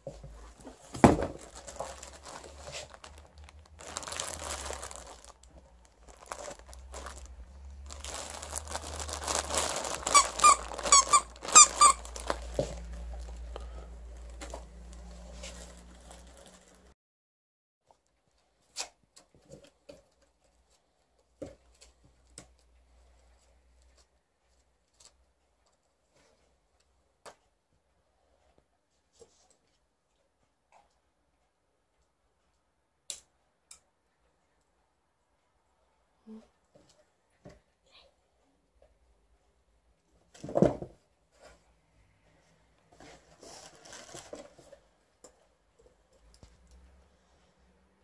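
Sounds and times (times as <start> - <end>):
faint clicks and rustles of cardboard: 0.0 - 10.0, 17.8 - 34.8, 35.4 - 47.7
cardboard packaging rustling: 0.4 - 13.4, 14.2 - 17.0, 43.0 - 44.8.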